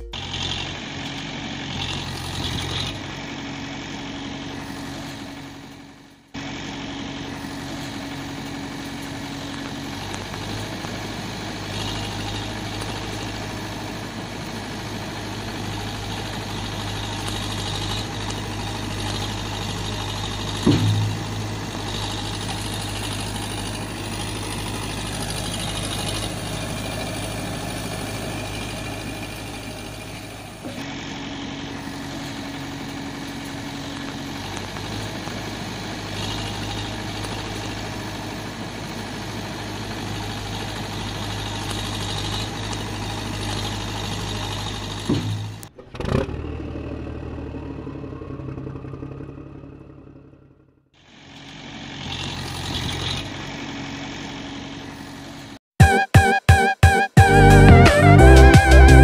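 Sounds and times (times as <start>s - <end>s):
heavy vehicle engine idling: 0.0s - 55.6s
loud knock: 20.7s - 21.4s.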